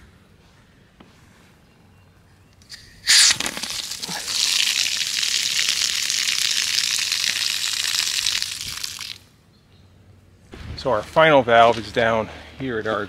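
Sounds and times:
water spurting from spigot: 0:02.7 - 0:09.2
water gushing onto grass: 0:03.0 - 0:09.2.

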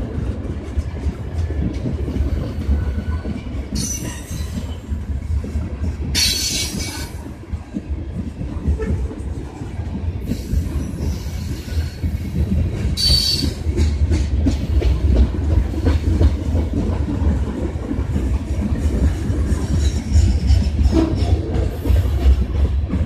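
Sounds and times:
freight train rumble: 0:00.0 - 0:23.0
train wheel squeal: 0:02.3 - 0:05.0, 0:06.2 - 0:07.2, 0:10.3 - 0:12.4, 0:13.0 - 0:13.8, 0:19.6 - 0:22.4.

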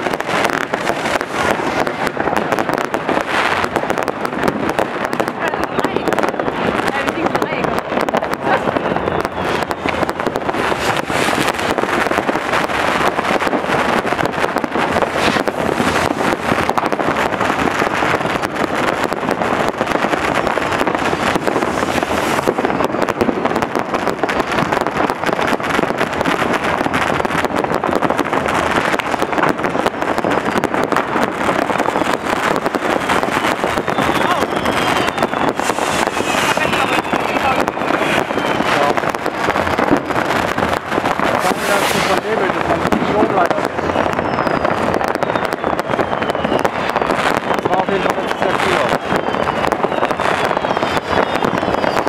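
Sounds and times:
fireworks crackling and banging: 0:00.0 - 0:52.0.

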